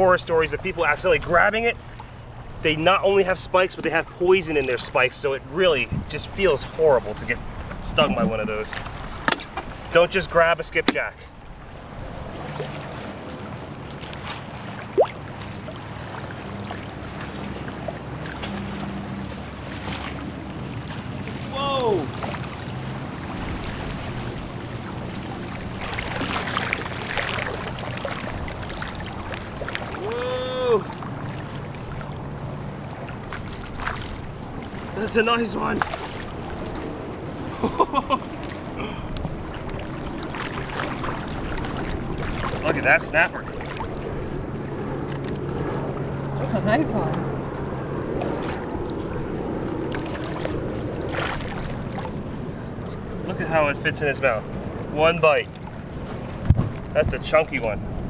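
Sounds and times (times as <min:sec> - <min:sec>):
water splashing: 0:00.0 - 0:57.8
water lapping and sloshing: 0:00.0 - 0:58.0
steady low rumble: 0:05.5 - 0:09.1.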